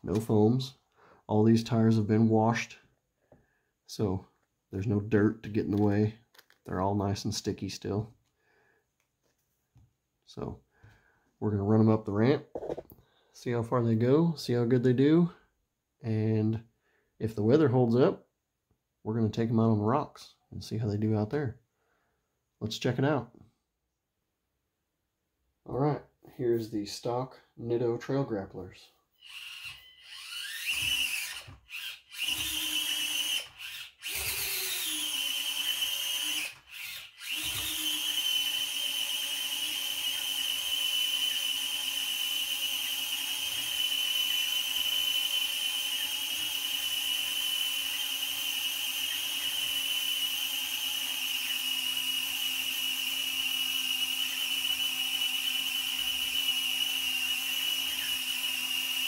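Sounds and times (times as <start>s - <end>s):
small electric motor whining: 29.2s - 59.0s.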